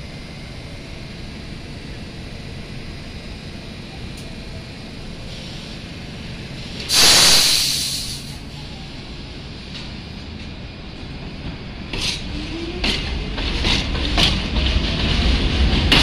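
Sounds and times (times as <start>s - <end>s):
subway train rumbling: 0.0s - 16.0s
train brakes air hiss: 5.2s - 5.9s, 6.6s - 8.8s.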